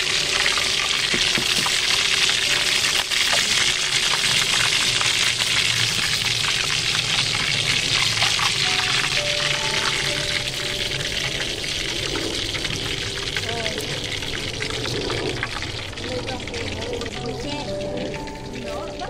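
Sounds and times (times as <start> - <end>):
chicken frying in hot oil: 0.0 - 19.0.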